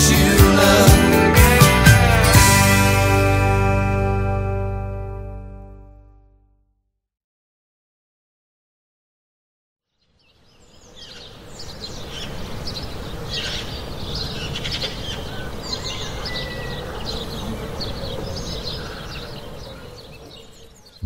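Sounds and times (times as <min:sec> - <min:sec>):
birds chirping: 0:09.9 - 0:21.0.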